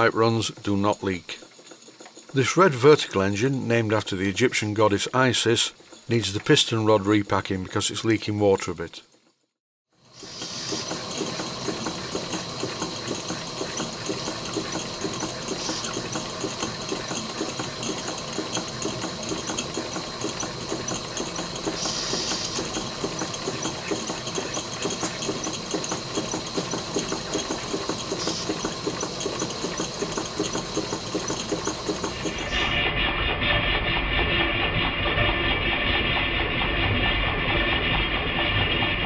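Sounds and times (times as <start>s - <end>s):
steam engine chuffing: 0.0s - 8.4s, 10.0s - 39.0s
steam hissing: 10.0s - 32.8s.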